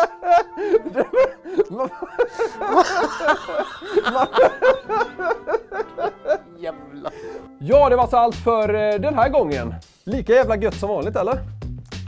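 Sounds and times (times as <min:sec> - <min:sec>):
man laughing heartily: 0:00.0 - 0:07.5.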